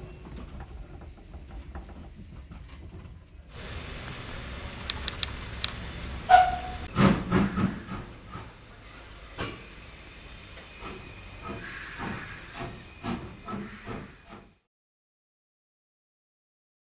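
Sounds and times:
steam locomotive hissing: 0:03.5 - 0:14.7.

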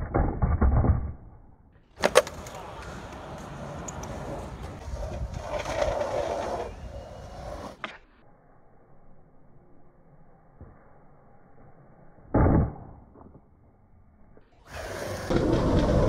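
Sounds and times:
skateboard wheels rolling on concrete: 0:01.9 - 0:08.1, 0:14.6 - 0:16.0
skateboard clacking: 0:02.0 - 0:07.9, 0:15.0 - 0:16.0.

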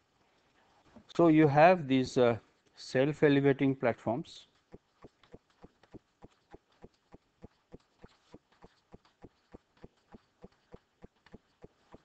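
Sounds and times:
faint regular ticking: 0:04.4 - 0:12.0.

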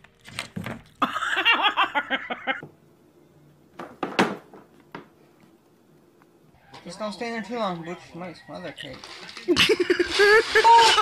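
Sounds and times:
person laughing: 0:01.0 - 0:02.6, 0:09.5 - 0:11.0.

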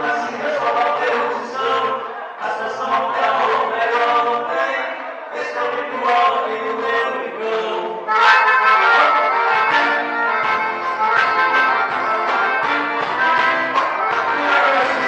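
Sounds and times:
person singing: 0:00.0 - 0:15.0
accordion: 0:08.0 - 0:15.0
live dance band playing: 0:08.1 - 0:15.0.

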